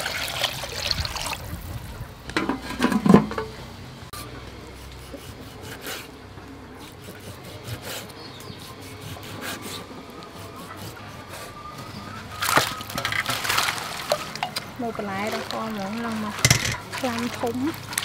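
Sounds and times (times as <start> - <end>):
water pouring into metal pot: 0.0 - 1.5, 12.4 - 18.0
knocks on pot: 16.4 - 16.8.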